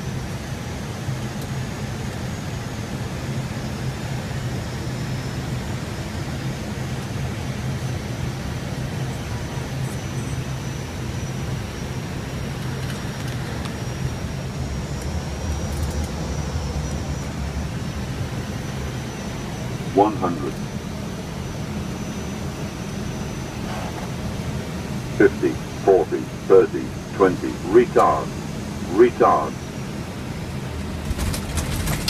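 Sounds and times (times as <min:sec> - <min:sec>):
faint high whine: 0:08.2 - 0:30.8
engine hum: 0:08.3 - 0:32.0.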